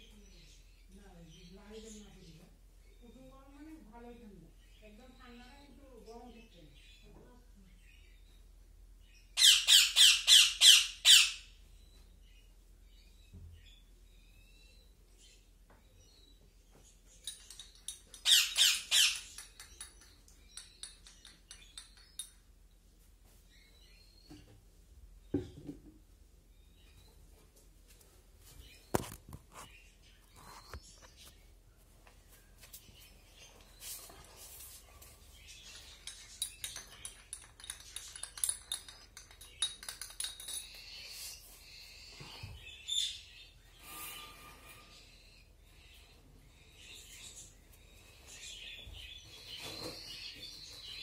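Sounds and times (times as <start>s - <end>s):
bird chicks chirping: 8.0s - 22.6s, 32.5s - 43.8s, 44.8s - 51.0s.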